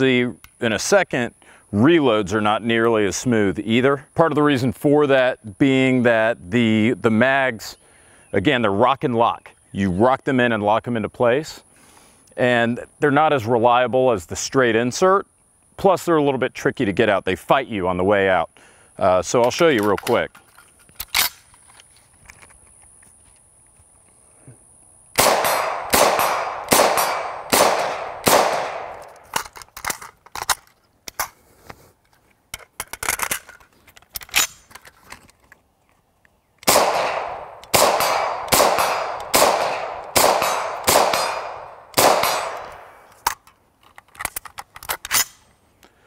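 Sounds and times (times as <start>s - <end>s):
rifle magazine and handle clicks: 19.4s - 23.1s, 26.2s - 31.4s, 32.1s - 45.9s
rifle shots: 25.2s - 29.4s, 36.6s - 43.1s.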